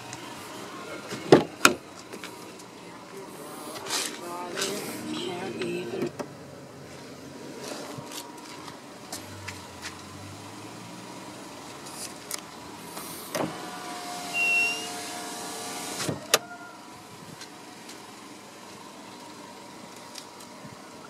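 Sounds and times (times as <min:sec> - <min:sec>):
electric window motor running: 0:12.8 - 0:16.2.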